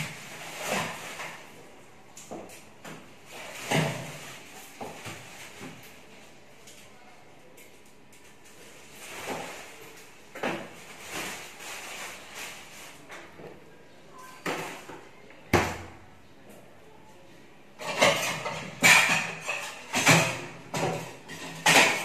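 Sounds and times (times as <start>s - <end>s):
dishes and utensils clattering: 17.8s - 22.0s.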